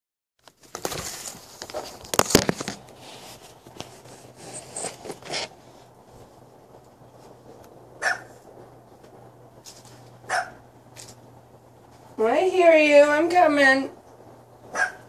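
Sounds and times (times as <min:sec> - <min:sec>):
phone handling rustling: 0:00.4 - 0:05.6.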